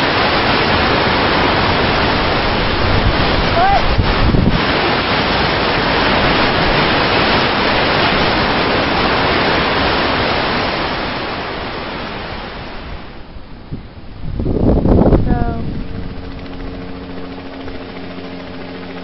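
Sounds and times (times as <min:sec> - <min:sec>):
blizzard wind rushing: 0:00.0 - 0:18.4.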